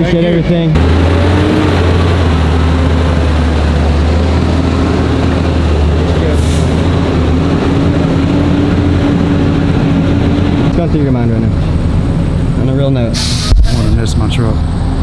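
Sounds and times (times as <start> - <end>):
diesel truck engine rumbling: 0.0 - 15.0
short hiss: 13.2 - 13.8.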